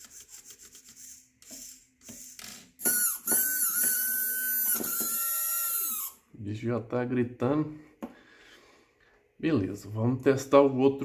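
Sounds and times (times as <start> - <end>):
small electric motor whining: 0.0 - 6.2.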